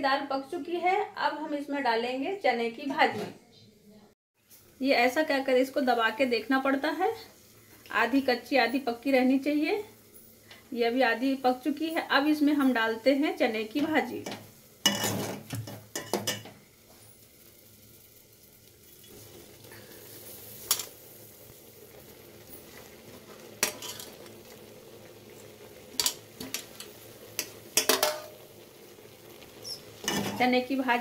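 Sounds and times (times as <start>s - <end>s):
metal spoon clinking against pot: 27.4s - 28.3s.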